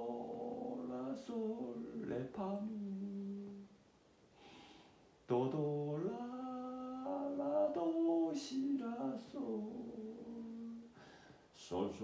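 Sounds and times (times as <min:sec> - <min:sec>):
man singing slow melody: 0:00.0 - 0:03.8, 0:05.2 - 0:12.0
soft breath: 0:04.3 - 0:05.2, 0:10.8 - 0:11.6.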